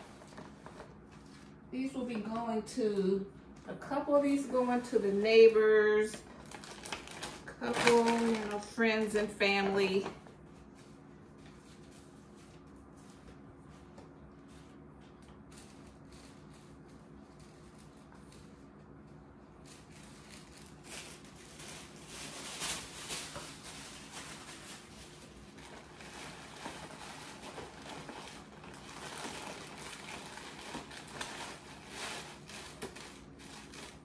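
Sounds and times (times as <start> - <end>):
paper bag and tissue rustling: 0.0 - 2.4, 3.8 - 34.0
faint steady hum: 0.0 - 34.0.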